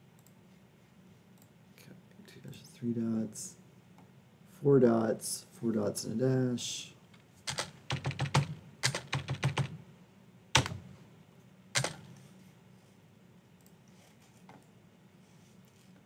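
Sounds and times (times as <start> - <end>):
keyboard typing: 7.5 - 9.8, 10.6 - 10.8, 11.8 - 12.1.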